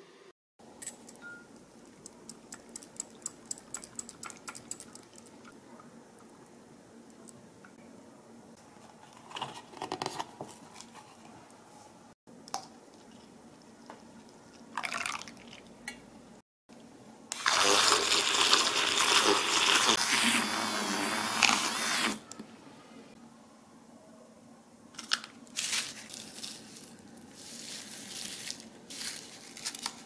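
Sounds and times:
electric milk frother whirring: 17.4 - 22.2.

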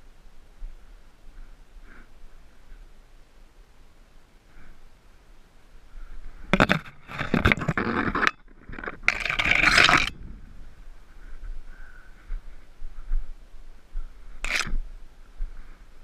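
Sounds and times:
loud scraping: 6.5 - 10.5, 14.4 - 14.8.

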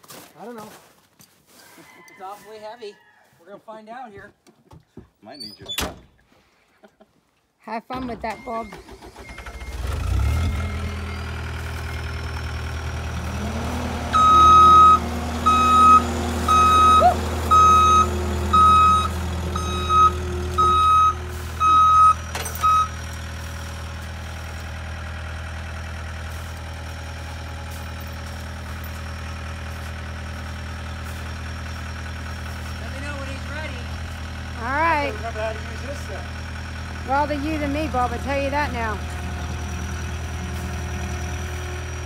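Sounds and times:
diesel engine running: 8.0 - 42.0
reversing alarm beeping: 8.2 - 12.2, 14.1 - 23.0.

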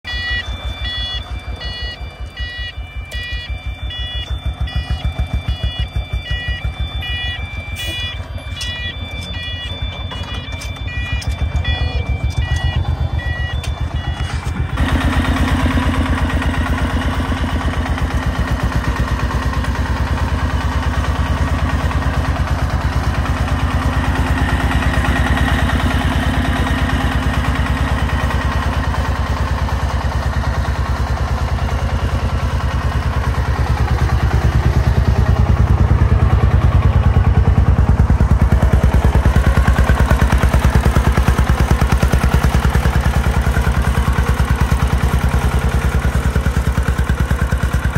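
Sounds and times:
diesel engine chugging: 0.0 - 47.9.

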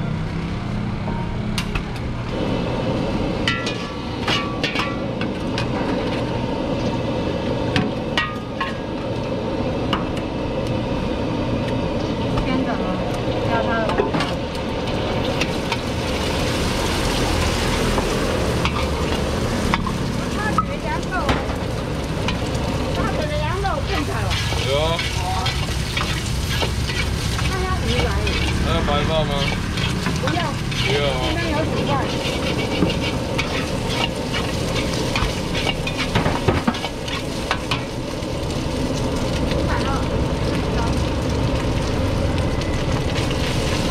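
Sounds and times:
gas burner rushing: 1.6 - 43.9
ladle scraping and knocking wok: 3.4 - 6.3, 13.8 - 38.0
egg sizzling in hot oil: 14.4 - 43.9.

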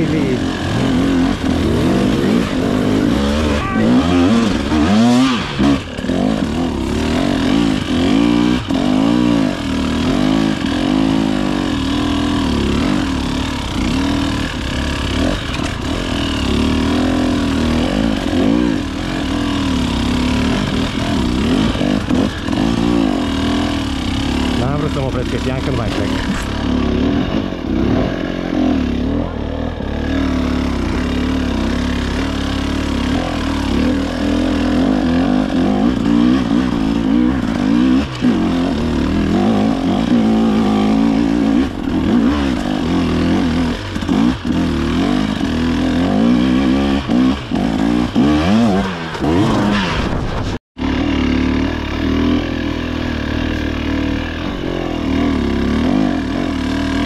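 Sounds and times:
two-stroke engine revving: 0.0 - 57.0.

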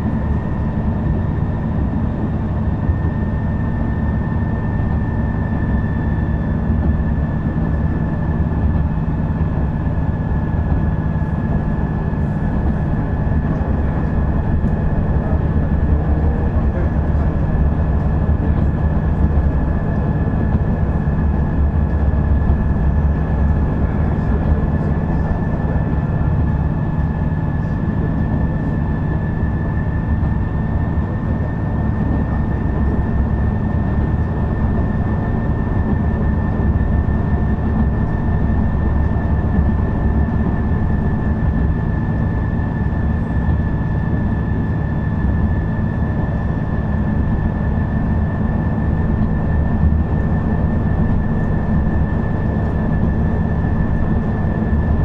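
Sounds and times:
railcar engine and wheels rumbling: 0.0 - 55.0.

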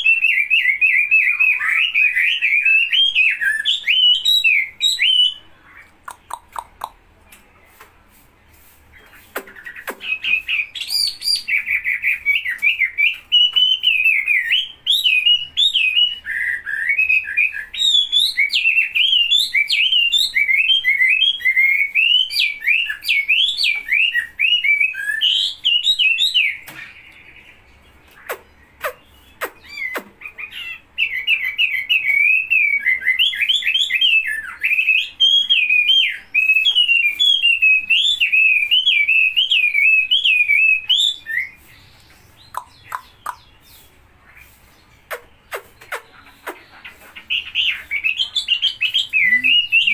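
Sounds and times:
songbird warbling: 9.0 - 49.9.

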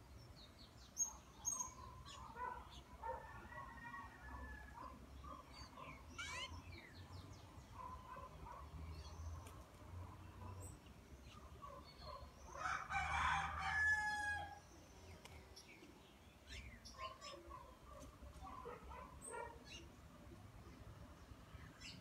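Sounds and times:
wild birds chirping and whistling: 0.3 - 9.6, 13.5 - 20.0
rooster crowing: 12.6 - 14.6.

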